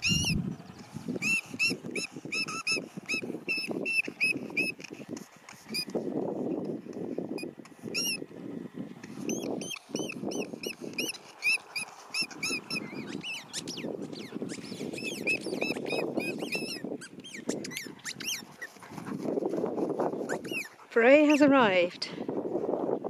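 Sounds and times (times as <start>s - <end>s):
squeaky ball squeaking: 1.2s - 4.8s, 7.4s - 8.2s, 9.3s - 18.7s, 20.2s - 21.5s.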